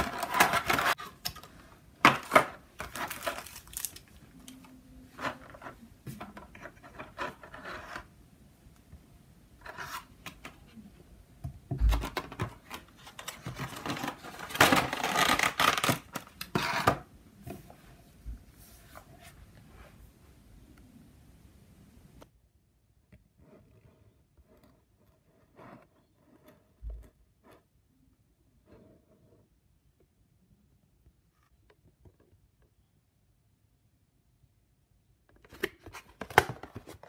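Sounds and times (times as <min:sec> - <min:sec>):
plastic wrapping crinkling: 0:00.0 - 0:04.6, 0:12.6 - 0:16.5.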